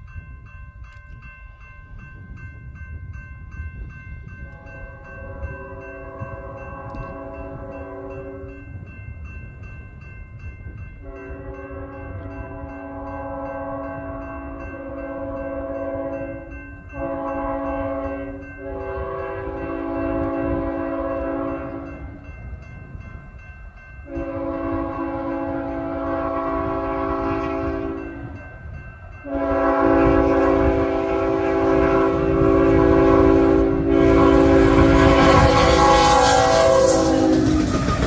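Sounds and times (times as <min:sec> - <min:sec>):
locomotive air horn blasts: 0:04.5 - 0:08.6, 0:11.0 - 0:22.2, 0:24.1 - 0:28.2, 0:29.2 - 0:38.0.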